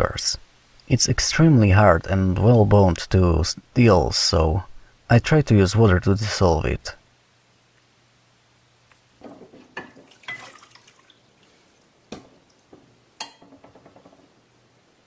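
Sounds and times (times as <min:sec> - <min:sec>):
water sloshing and dripping in a tub: 0:09.2 - 0:12.9.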